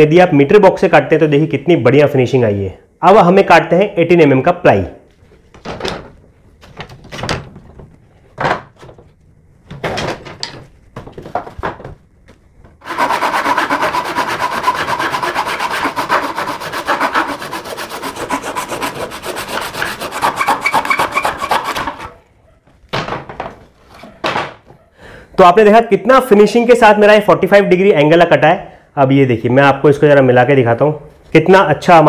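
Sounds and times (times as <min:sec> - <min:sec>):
hand saw cutting plywood: 0:12.8 - 0:22.2.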